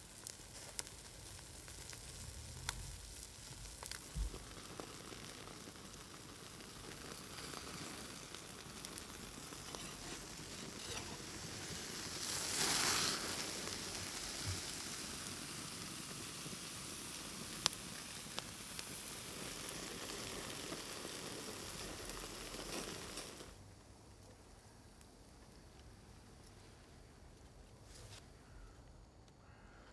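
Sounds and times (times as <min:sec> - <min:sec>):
meat sizzling on a grill: 0:00.0 - 0:23.6
fat spitting and crackling: 0:08.8 - 0:14.7.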